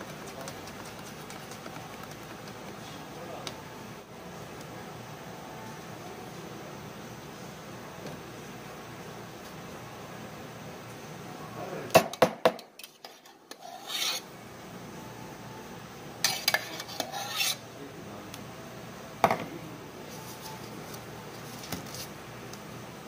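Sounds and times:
metal spoon clinking and scraping: 0:16.2 - 0:17.6.

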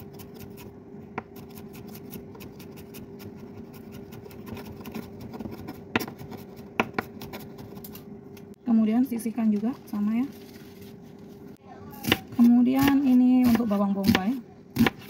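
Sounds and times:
knife chopping on wooden board: 0:03.6 - 0:07.3, 0:12.0 - 0:15.0.

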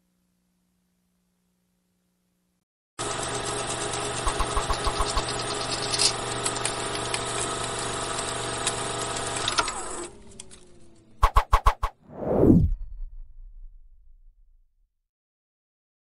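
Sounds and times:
film projector running: 0:03.0 - 0:10.8.

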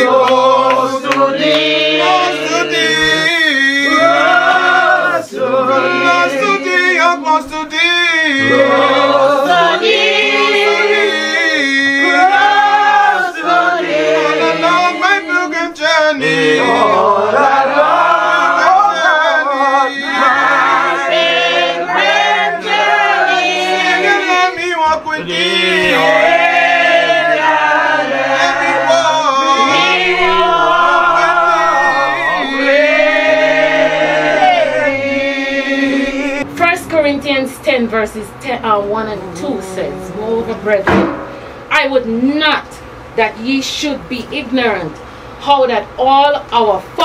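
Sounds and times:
congregation singing a hymn: 0:00.0 - 0:41.5.

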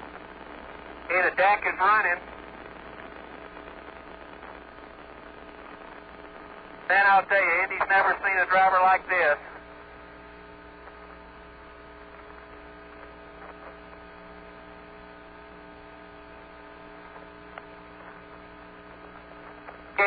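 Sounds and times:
electrical hum with hiss: 0:00.0 - 0:20.0
faint clicks: 0:17.0 - 0:18.4, 0:19.0 - 0:19.9.

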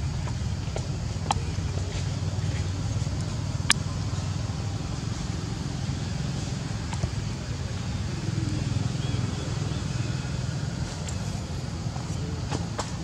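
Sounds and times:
engine running: 0:00.0 - 0:13.0.

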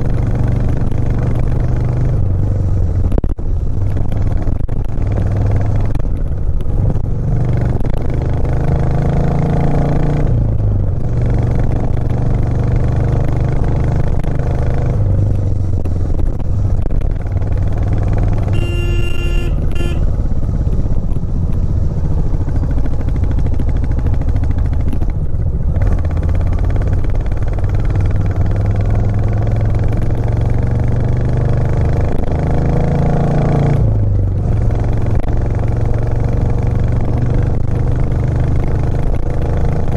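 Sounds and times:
motorcycle engine under load: 0:00.0 - 0:33.0
short horn beep: 0:18.5 - 0:20.1.

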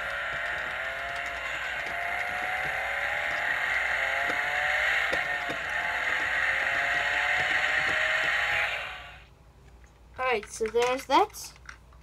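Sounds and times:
toy race car engine revving: 0:00.0 - 0:09.3.

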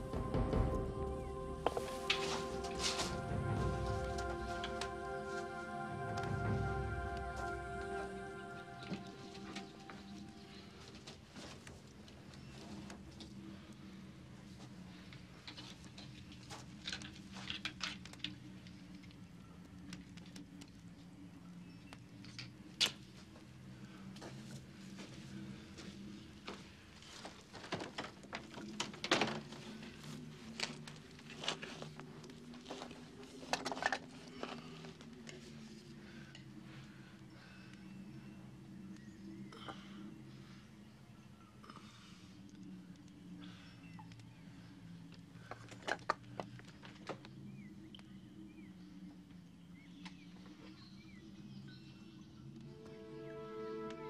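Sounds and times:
low steady hum: 0:00.0 - 0:22.7
objects rustling and clattering: 0:24.2 - 0:36.6.

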